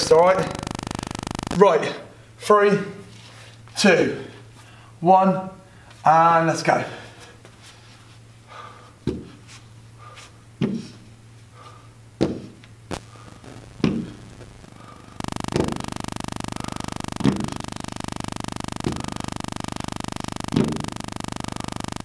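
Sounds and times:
steady buzz: 0.0s - 2.2s, 12.9s - 22.0s.

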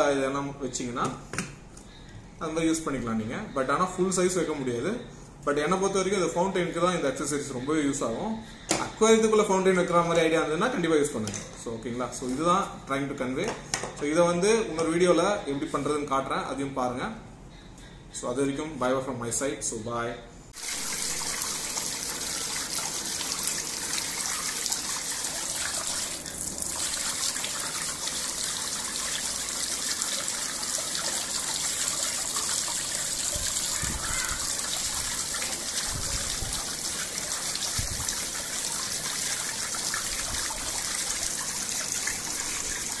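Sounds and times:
fountain water splashing into tub: 20.6s - 43.0s.

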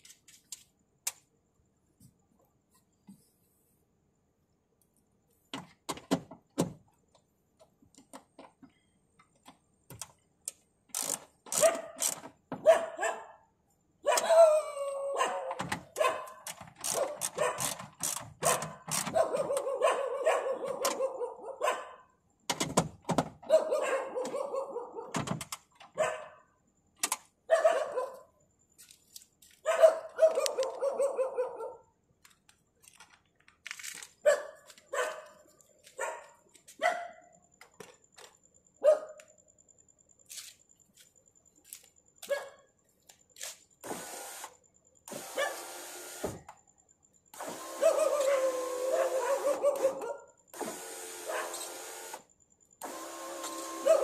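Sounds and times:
dog barking: 11.6s - 12.0s, 12.6s - 17.7s, 18.4s - 22.2s, 23.4s - 25.2s, 26.0s - 26.5s, 27.5s - 28.4s, 29.6s - 31.9s, 34.2s - 35.4s, 36.0s - 37.3s, 38.8s - 39.2s, 42.2s - 42.7s, 45.4s - 45.6s, 47.8s - 50.4s, 51.3s - 51.6s, 53.8s - 54.0s.

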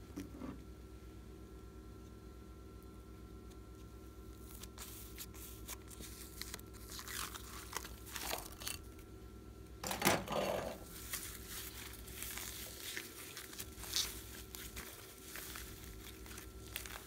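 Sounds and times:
slime crackling and tearing: 4.5s - 8.9s, 11.0s - 17.0s.

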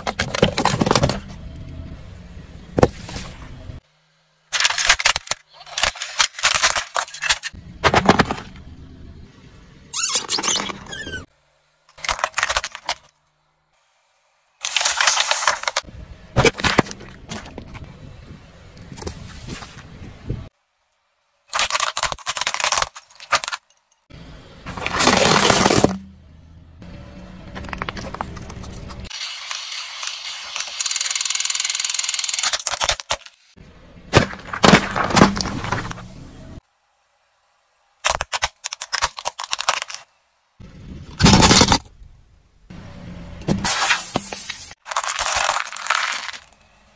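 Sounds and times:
plastic toys squeaking and crunching: 4.5s - 8.6s, 9.9s - 11.3s, 11.9s - 13.2s, 14.6s - 17.8s, 21.5s - 23.9s, 24.7s - 26.0s, 27.5s - 33.5s, 38.0s - 40.1s, 41.1s - 42.0s, 43.6s - 46.7s
sharp plastic cracks: 21.5s - 23.6s, 31.8s - 33.4s, 38.0s - 40.0s
electronic toy rattle: 29.1s - 32.6s.

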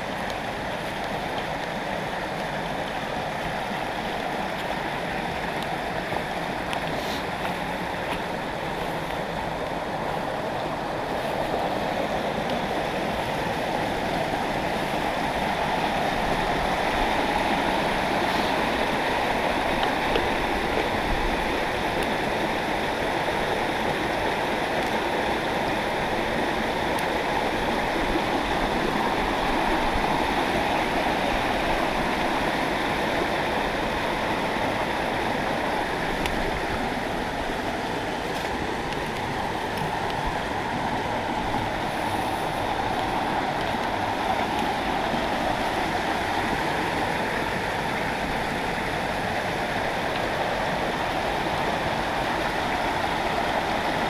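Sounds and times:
stream flowing over stones: 0.0s - 54.0s.

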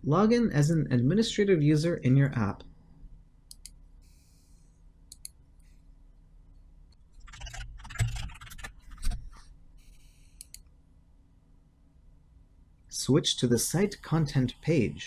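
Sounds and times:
computer mouse clicks: 3.5s - 3.8s, 5.1s - 5.7s, 6.9s - 10.7s
keyboard typing: 7.0s - 10.6s.

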